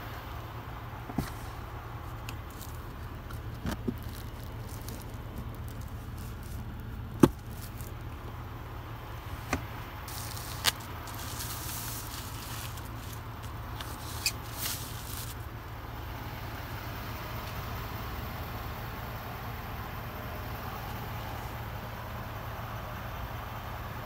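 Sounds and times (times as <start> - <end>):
hand rustling over interior trim: 1.1 - 8.3, 9.2 - 15.4.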